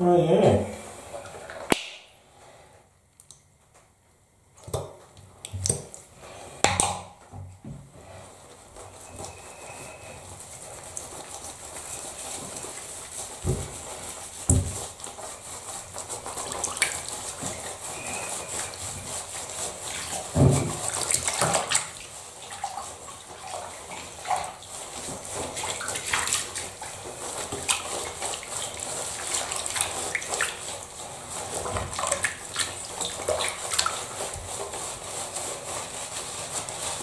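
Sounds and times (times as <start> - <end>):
bathwater sloshing and splashing: 7.9 - 37.0
hands scrubbing wet fur: 7.9 - 37.0.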